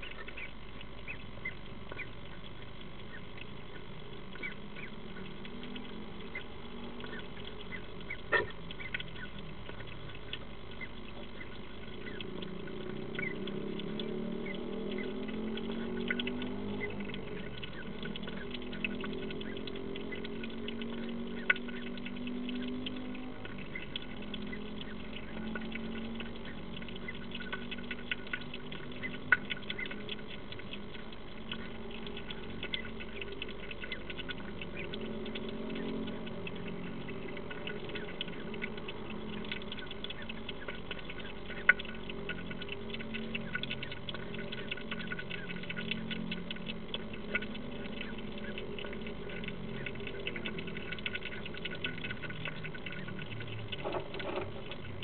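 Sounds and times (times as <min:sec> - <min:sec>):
steady low hum: 0:00.0 - 0:55.0
hedgehog eating clicks and crunches: 0:01.9 - 0:55.0.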